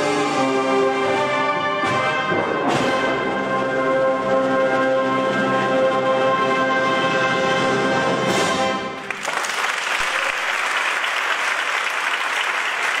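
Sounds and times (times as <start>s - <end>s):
audience applauding: 9.0s - 13.0s.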